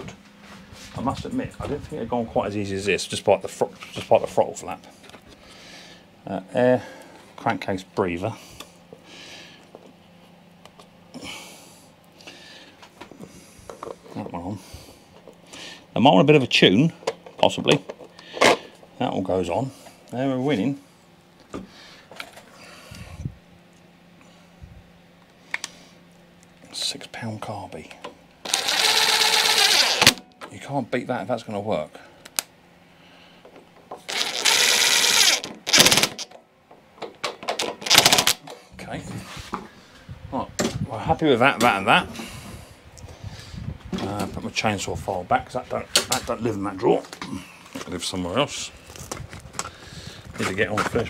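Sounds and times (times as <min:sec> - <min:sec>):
impact driver hammering: 0:35.7 - 0:36.2.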